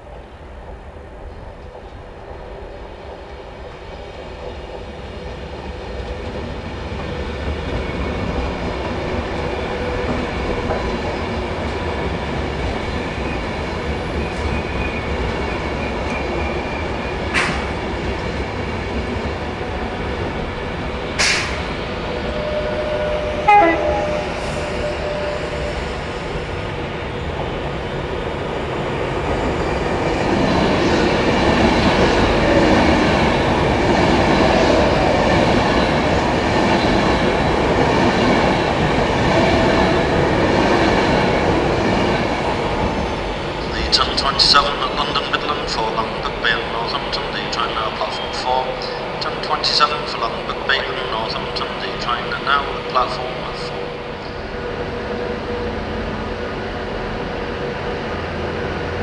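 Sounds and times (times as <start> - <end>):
electric train passing: 0.0 - 59.0
steady high tone: 22.6 - 25.6.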